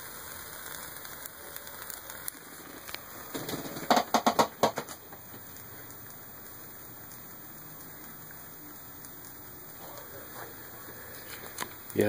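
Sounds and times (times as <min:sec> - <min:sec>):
alcohol stove hissing: 0:00.0 - 0:12.0
loud clicks and knocks: 0:03.4 - 0:05.0.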